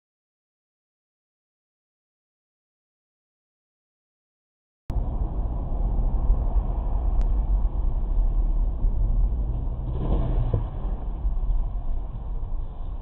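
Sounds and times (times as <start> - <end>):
car engine and road noise: 4.9 - 13.0.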